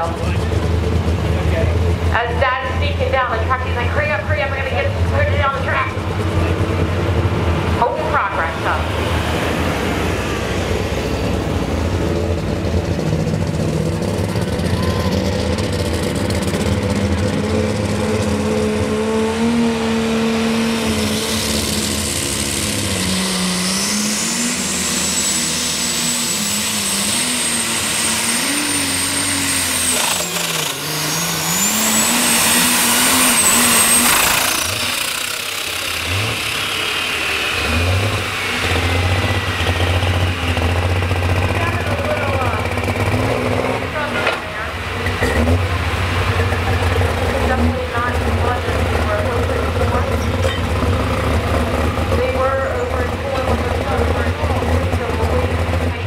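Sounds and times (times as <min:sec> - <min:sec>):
diesel engine under load: 0:00.0 - 0:56.0
falling whine: 0:00.0 - 0:56.0
high turbo whistle: 0:20.7 - 0:41.8.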